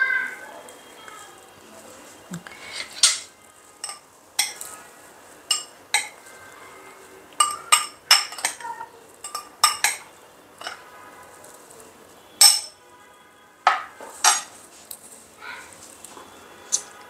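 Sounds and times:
metal spoon clinking glass: 2.9 - 4.7, 5.5 - 6.3, 7.4 - 10.8, 12.4 - 12.8.

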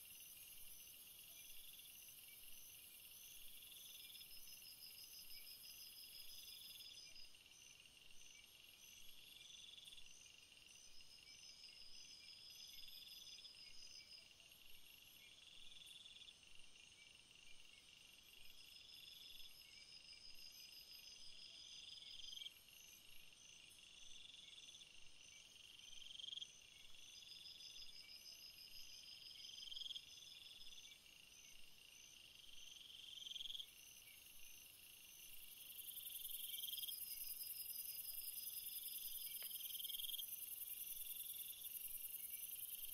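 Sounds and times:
insect chirping: 0.0 - 42.9
pulsing insect trills: 25.7 - 42.9.

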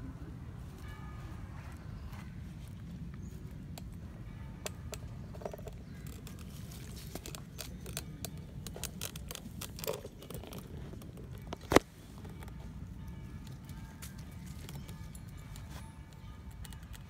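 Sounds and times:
rustling and crackling: 4.9 - 17.0.

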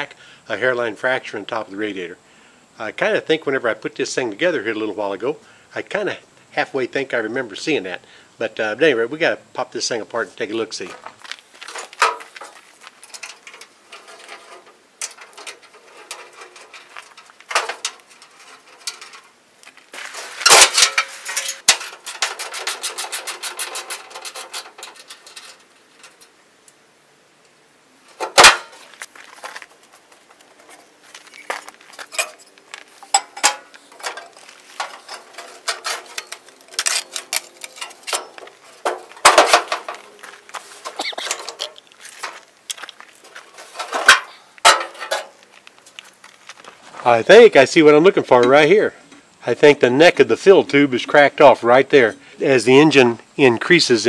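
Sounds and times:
sheet metal knocks and clanks: 11.7 - 12.5, 33.1 - 40.1.

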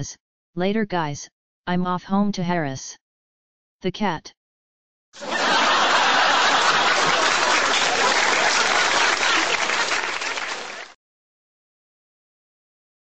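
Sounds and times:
crowd applause: 5.2 - 11.0.

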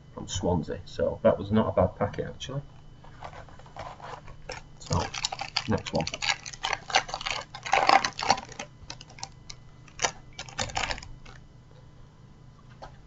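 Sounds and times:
card wrapper crinkling: 3.2 - 11.4.

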